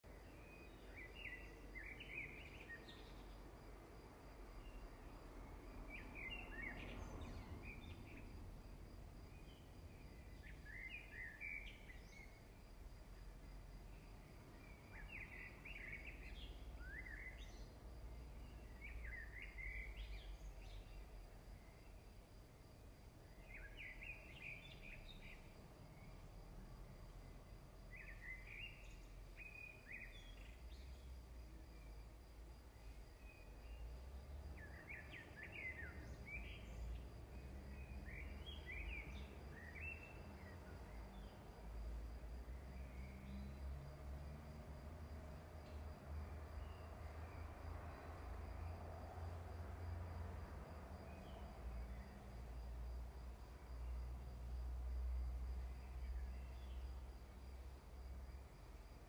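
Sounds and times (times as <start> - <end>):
bird chirping: 0.1 - 3.4, 5.8 - 8.4, 9.2 - 12.5, 14.0 - 22.0, 23.3 - 26.3, 27.8 - 32.0, 32.8 - 41.5.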